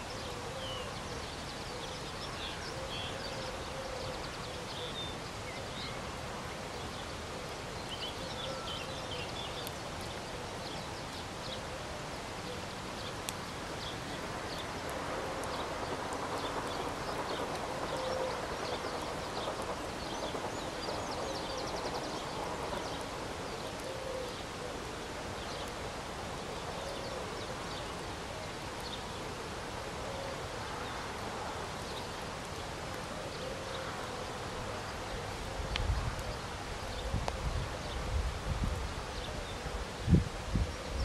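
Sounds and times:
steady hiss: 0:00.0 - 0:41.0
wind buffeting the microphone: 0:34.3 - 0:41.0.

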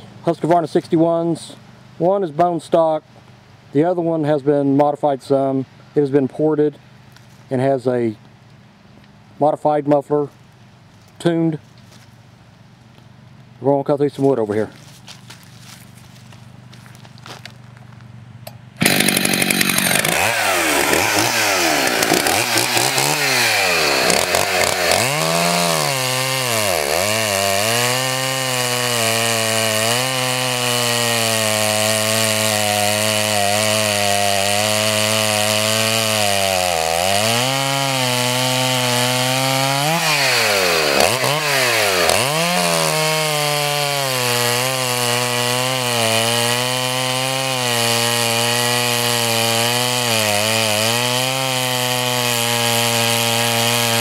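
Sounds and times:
chainsaw cutting through a log: 0:18.8 - 0:54.0.

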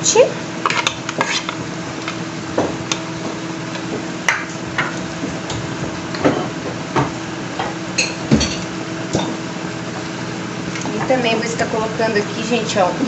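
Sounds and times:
steady hum: 0:00.0 - 0:13.0
plastic spatula scraping a pan: 0:00.7 - 0:01.6.

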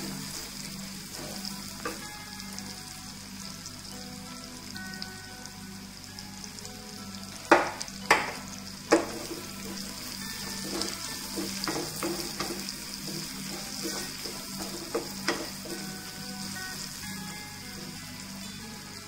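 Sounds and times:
vegetables sizzling in a pan: 0:00.0 - 0:19.0
spatula knocking on pan: 0:07.5 - 0:16.0
spatula stirring strokes: 0:08.9 - 0:18.5.

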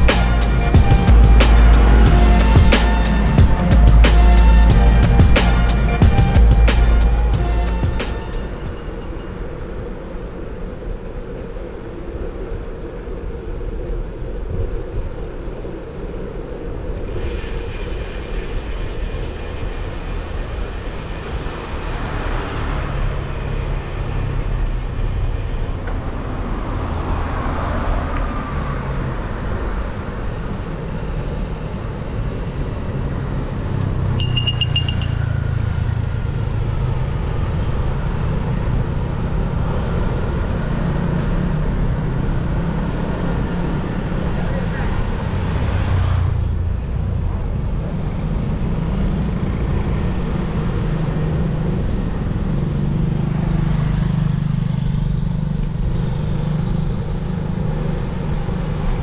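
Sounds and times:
motorbikes and cars passing: 0:00.0 - 0:14.3, 0:17.0 - 0:59.0
traffic rumble: 0:00.0 - 0:59.0
short high-pitched beep: 0:34.2 - 0:35.8.

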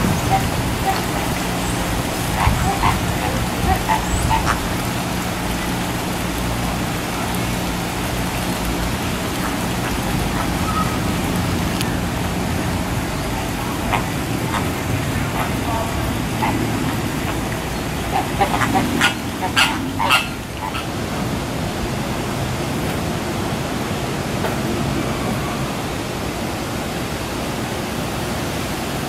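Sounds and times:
flamingos honking: 0:00.0 - 0:21.4
low hum and rushing noise: 0:00.0 - 0:29.0.

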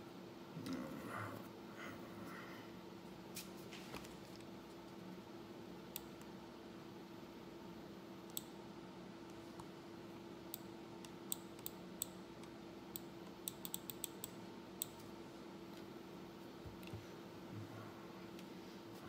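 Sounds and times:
faint steady hum: 0:00.0 - 0:19.0
computer mouse clicking: 0:05.9 - 0:06.3, 0:08.3 - 0:08.5, 0:10.5 - 0:15.1.

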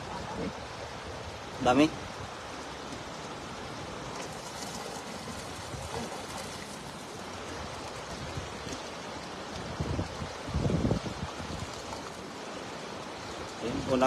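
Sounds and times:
water running and trickling: 0:00.0 - 0:14.0
faint splashes in water: 0:02.4 - 0:14.0.

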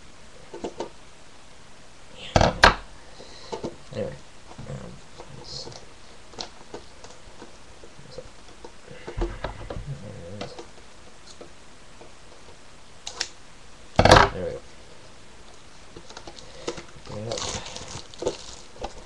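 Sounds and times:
low bump: 0:09.2 - 0:10.1.

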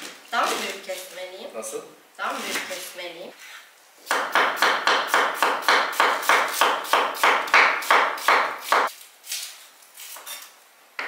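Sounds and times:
knife chopping on cutting board: 0:04.1 - 0:08.9.

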